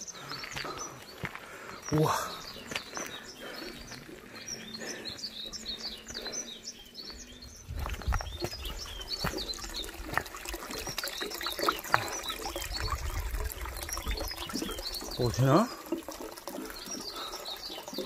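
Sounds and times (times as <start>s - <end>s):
small birds chirping: 0.0s - 18.0s
water trickling into a basin: 0.0s - 18.0s.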